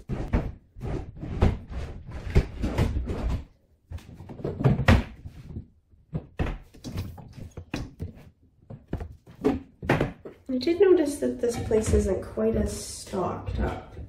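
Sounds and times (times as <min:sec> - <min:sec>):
cupboard doors opening and shutting: 0:00.0 - 0:10.3.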